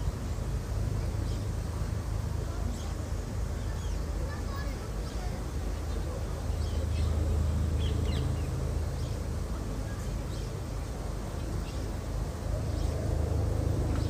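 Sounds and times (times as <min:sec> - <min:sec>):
faint murmur of voices: 0:00.0 - 0:14.0
steady low rumble: 0:00.0 - 0:14.0.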